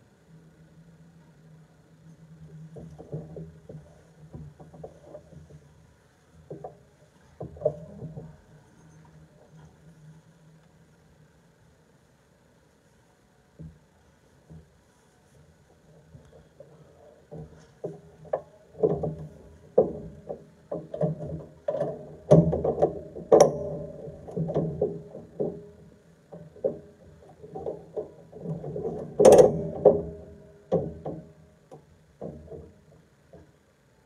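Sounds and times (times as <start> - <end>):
mechanical clicks and knocks: 16.1 - 33.6.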